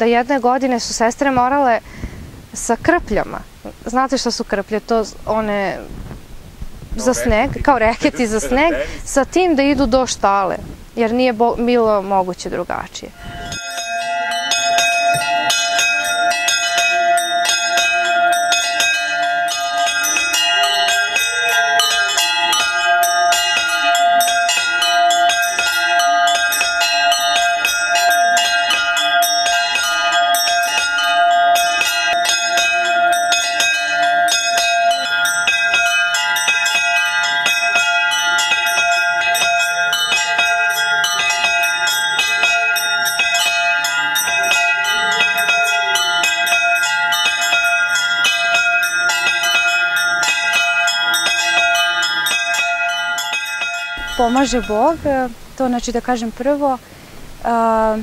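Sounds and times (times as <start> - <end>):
church bells pealing: 13.2 - 56.6.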